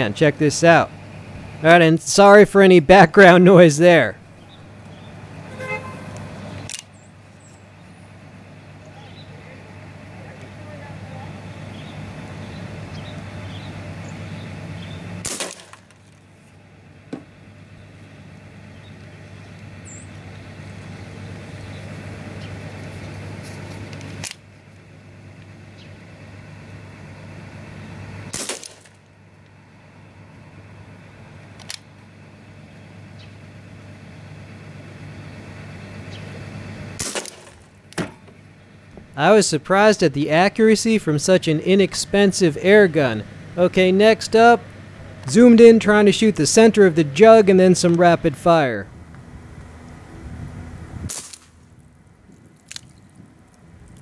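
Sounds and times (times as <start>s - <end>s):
low background hum: 0.0s - 54.0s
air pistol shots popping: 15.2s - 16.0s, 28.3s - 29.0s, 37.0s - 38.2s, 51.1s - 51.6s.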